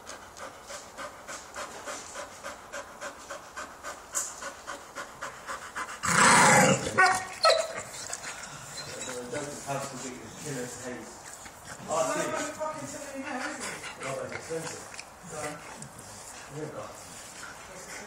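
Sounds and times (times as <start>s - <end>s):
dog panting quickly: 0.0s - 6.2s, 7.1s - 18.0s
dog gnawing a brick: 11.2s - 16.6s.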